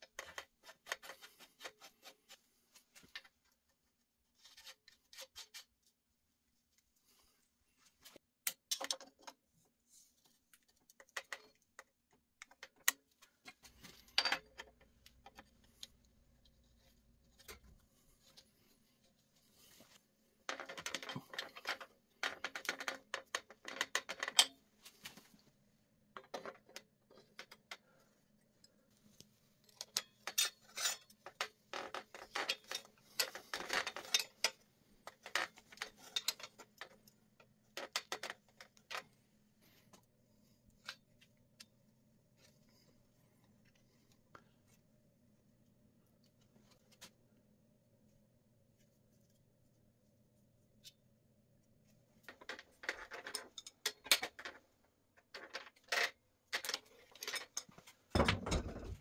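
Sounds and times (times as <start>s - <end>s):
metal tools clinking and scraping: 29.7s - 34.6s, 55.4s - 59.0s.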